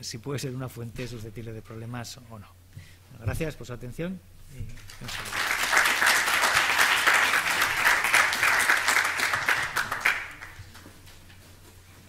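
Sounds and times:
audience applauding: 4.8s - 10.9s.

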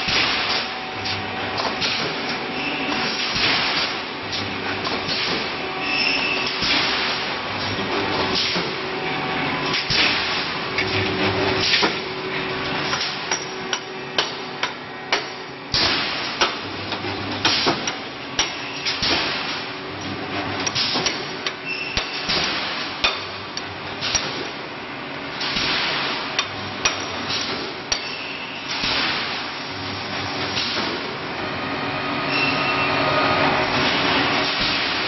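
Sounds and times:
welding machine metallic clacks: 9.6s - 24.7s, 25.3s - 29.6s.

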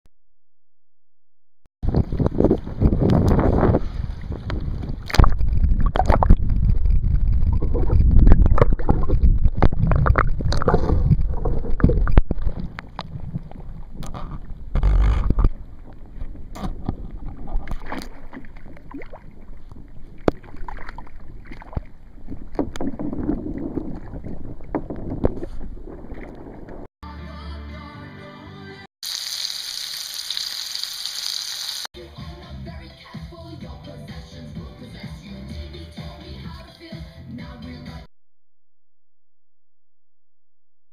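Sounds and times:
wind buffeting microphone: 1.8s - 17.7s
water slapping kayak hull: 7.5s - 26.8s.

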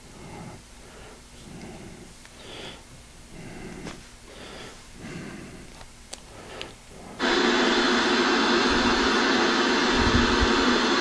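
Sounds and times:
heavy breathing through nose: 0.0s - 7.3s.

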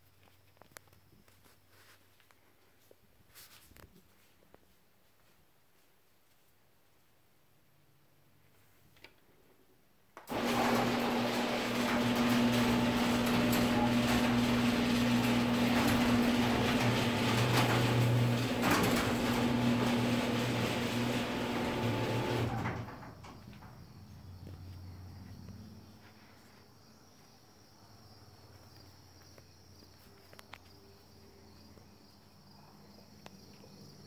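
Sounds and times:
garage door opener motor hum: 10.2s - 23.7s.

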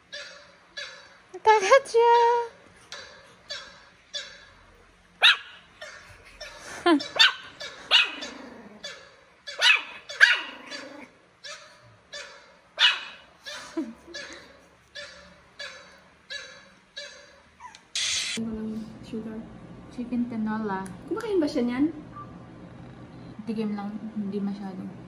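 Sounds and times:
small dog barking: 5.2s - 6.0s, 7.0s - 13.3s, 15.0s - 17.4s.

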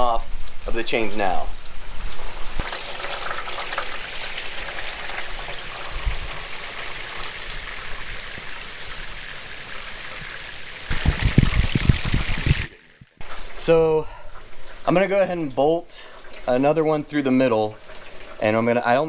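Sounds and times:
water trickling down metal chains: 13.2s - 19.0s.

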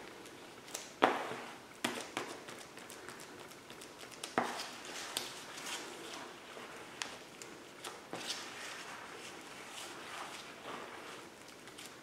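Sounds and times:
spreader scraping and slapping filler: 7.8s - 12.0s.

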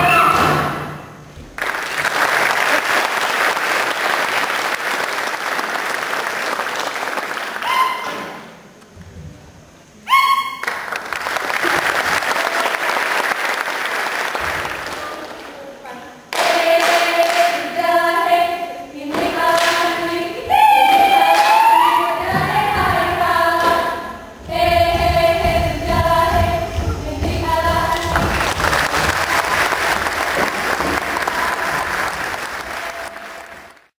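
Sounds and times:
audience applause: 1.6s - 7.7s, 10.6s - 15.4s, 28.0s - 33.9s
women chanting in unison: 15.9s - 28.2s
low thuds: 22.2s - 31.2s.

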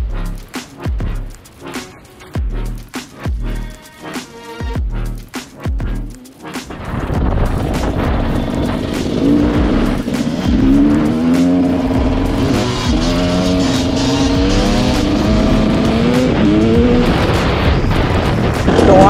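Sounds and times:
rough rushing noise: 6.3s - 19.0s
dirt bike engine revving: 7.2s - 19.0s.

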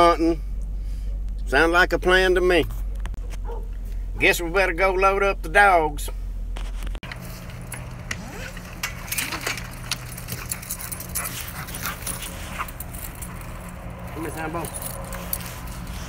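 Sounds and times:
low hum: 0.0s - 16.0s
kennel gate and leash rattling: 7.0s - 16.0s
dogs whining: 7.8s - 13.9s.

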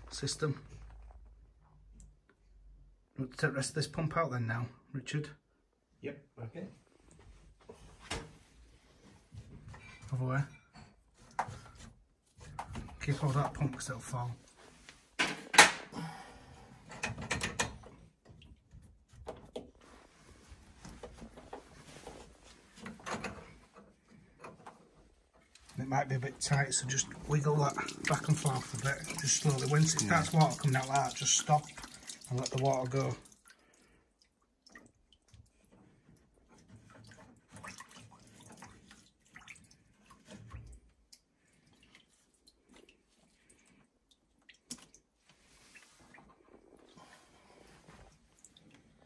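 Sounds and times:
clicks of pump fittings: 16.9s - 18.4s
water trickling and dripping: 25.5s - 49.0s.

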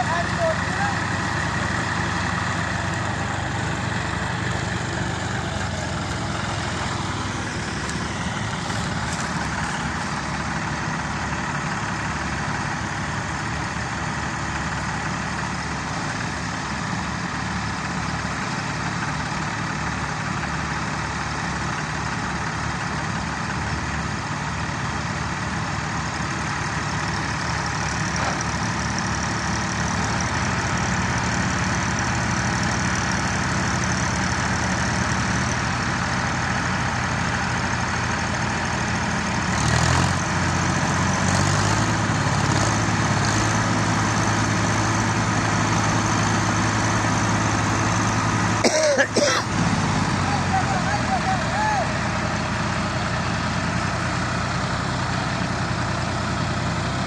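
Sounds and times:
tractor diesel engines chugging: 0.0s - 57.0s.

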